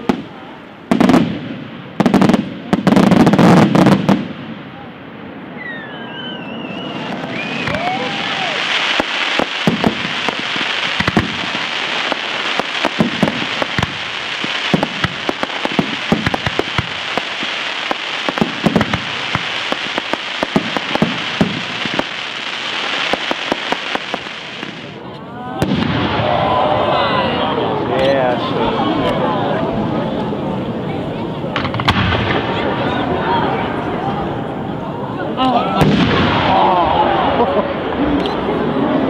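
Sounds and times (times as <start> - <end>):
firework bangs: 0.0 - 26.9, 31.5 - 34.5, 35.8 - 38.1
fireworks crackling: 0.0 - 27.0, 31.4 - 35.0, 35.8 - 39.0
firework whistle: 5.5 - 11.7.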